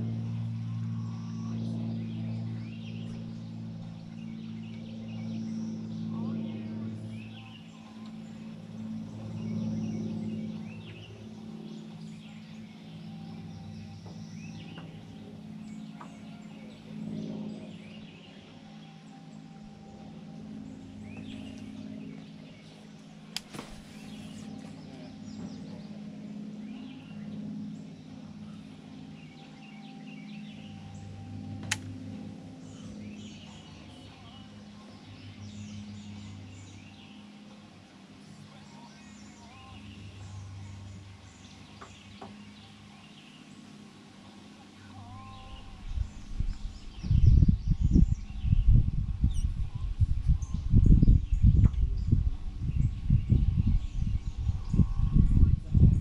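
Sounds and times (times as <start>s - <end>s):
birds chirping: 0.0s - 56.0s
low droning hum: 0.0s - 56.0s
sharp click: 31.6s - 31.9s.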